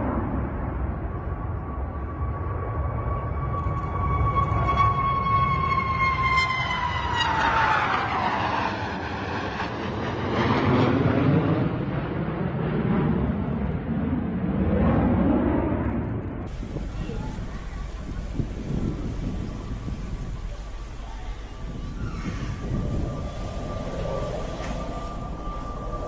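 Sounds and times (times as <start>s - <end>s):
high jet engine whine: 0.0s - 26.0s
jet roar: 0.0s - 26.0s.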